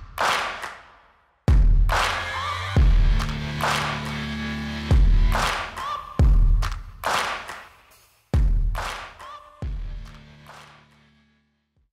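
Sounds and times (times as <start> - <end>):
music with heavy beat: 1.5 - 11.0
deep bass hit: 2.8 - 5.6.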